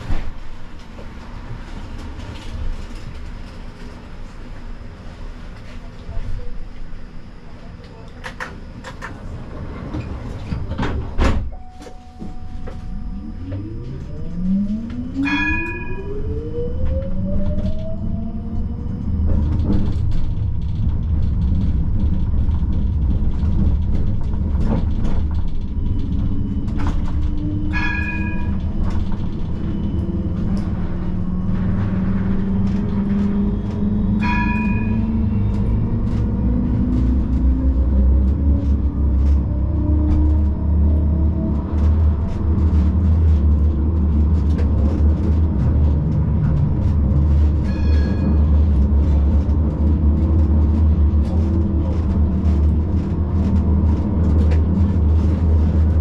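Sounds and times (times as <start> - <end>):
tram motor whine: 0.0 - 56.0
wheels rumbling on rails: 0.0 - 56.0
tram bell ringing: 10.4 - 17.4, 25.0 - 38.0, 47.3 - 49.9.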